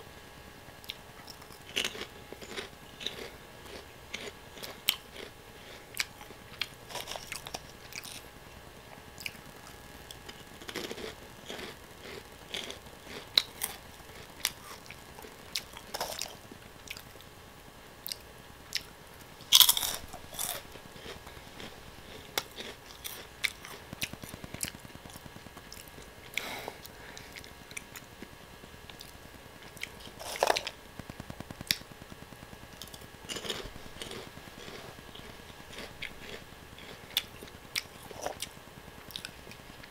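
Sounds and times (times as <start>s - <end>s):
crunching and chewing snack: 0.8s - 8.3s, 9.2s - 17.3s, 18.0s - 39.9s.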